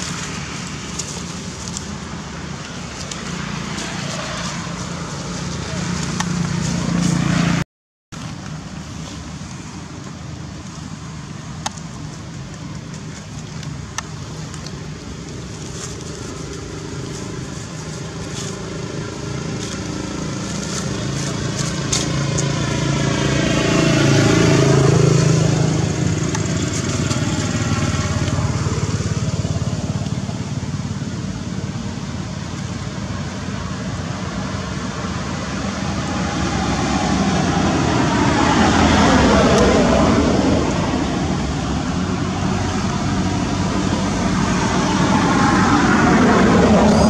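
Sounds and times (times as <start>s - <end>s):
vehicle engine passing: 0.0s - 7.6s, 13.2s - 32.3s, 33.0s - 47.0s
road traffic hum: 0.0s - 47.0s.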